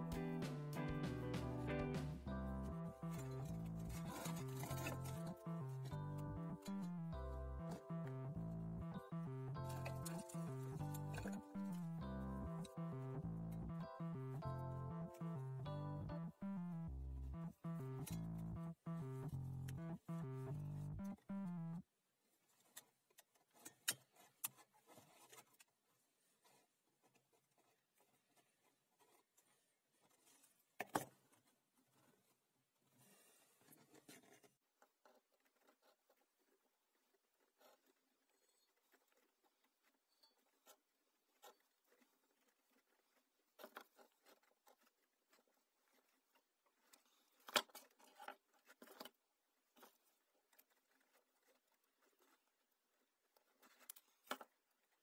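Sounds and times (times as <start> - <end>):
guitar music: 0.0 - 21.8.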